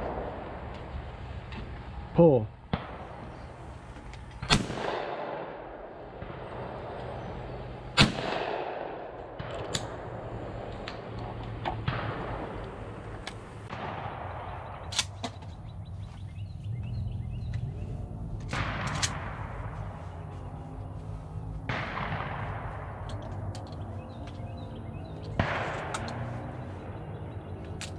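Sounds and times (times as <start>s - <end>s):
shotgun blasts: 2.7s - 3.6s, 4.4s - 7.0s, 7.9s - 10.1s, 11.8s - 13.0s, 13.6s - 15.3s, 21.7s - 23.1s, 25.3s - 26.5s.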